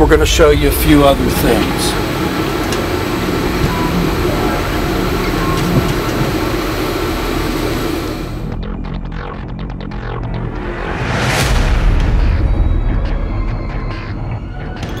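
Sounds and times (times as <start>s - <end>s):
gas burners rushing: 0.0s - 8.6s.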